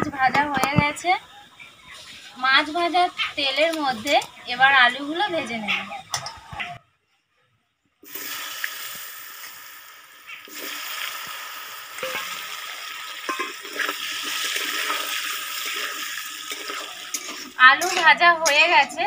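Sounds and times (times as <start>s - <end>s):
potatoes sizzling in hot oil: 0.0s - 5.6s, 8.0s - 19.0s
spatula scraping pan: 13.3s - 19.0s.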